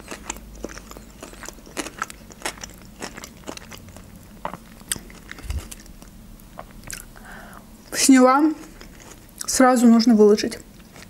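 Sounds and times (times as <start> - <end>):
person chewing food: 0.0 - 7.2, 8.6 - 9.5, 10.7 - 11.0.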